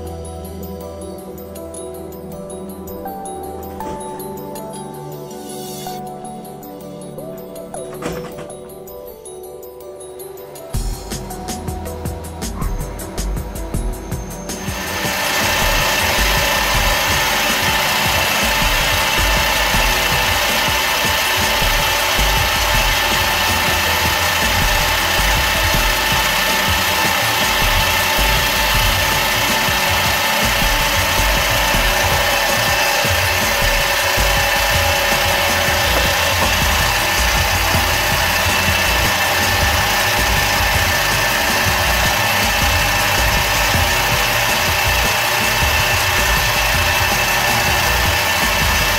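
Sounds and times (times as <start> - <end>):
metal lathe motor whine: 0.0 - 48.9
hiss: 10.8 - 48.9.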